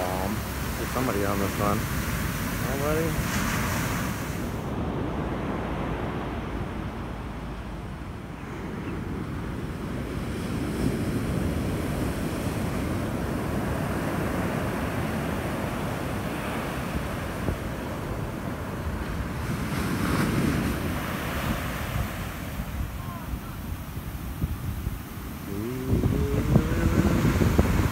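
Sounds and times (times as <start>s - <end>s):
surf crashing on beach: 0.0s - 27.9s
wind buffeting microphone: 0.0s - 27.9s.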